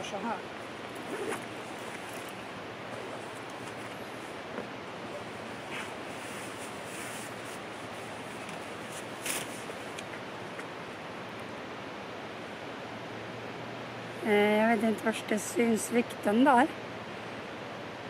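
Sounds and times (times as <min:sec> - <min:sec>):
stream water rushing: 0:00.0 - 0:18.0
nylon stuff sack rustling: 0:00.9 - 0:09.9.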